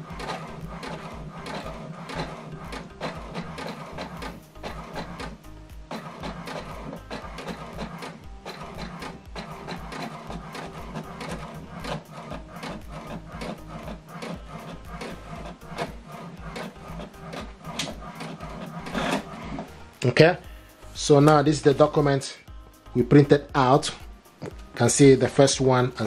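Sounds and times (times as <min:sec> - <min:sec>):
inkjet printer printing: 0:00.0 - 0:19.8.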